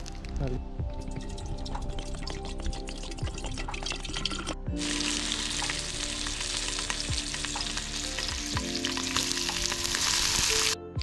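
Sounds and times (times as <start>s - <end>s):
water pouring into kettle: 1.0s - 10.7s
sausages sizzling in frying pan: 4.8s - 10.8s.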